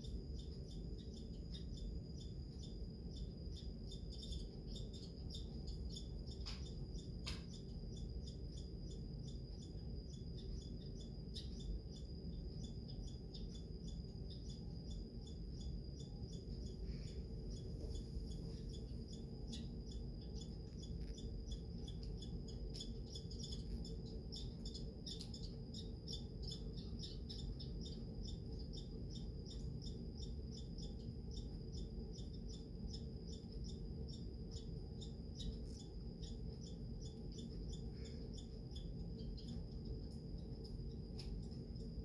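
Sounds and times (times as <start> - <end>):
squirrel chattering: 18.3 - 39.7.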